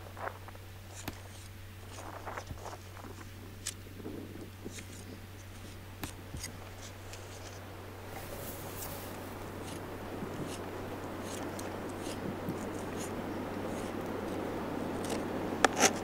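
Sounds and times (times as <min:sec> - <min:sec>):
steady low hum: 0:00.0 - 0:16.0
soft scraping: 0:06.4 - 0:16.0.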